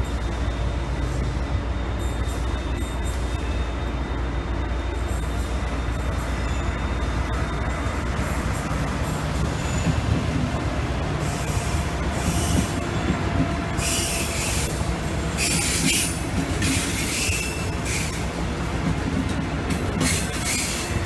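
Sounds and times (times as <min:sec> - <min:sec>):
train wheels rumbling on rails: 0:00.0 - 0:21.0
high-pitched wheel squeal: 0:13.8 - 0:14.7, 0:15.4 - 0:18.2, 0:20.0 - 0:21.0.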